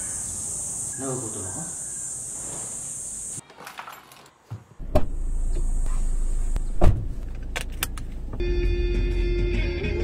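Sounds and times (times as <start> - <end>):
seatbelt buckle clicks: 7.2 - 8.2.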